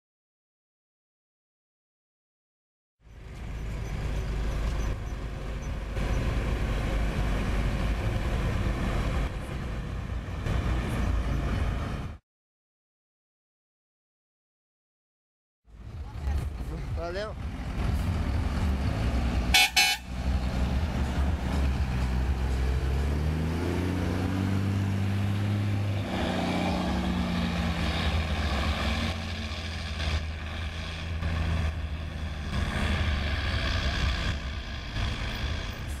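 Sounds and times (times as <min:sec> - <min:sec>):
diesel truck engine driving past: 0:03.1 - 0:12.2, 0:15.7 - 0:36.0
short horn toot: 0:19.5 - 0:20.1.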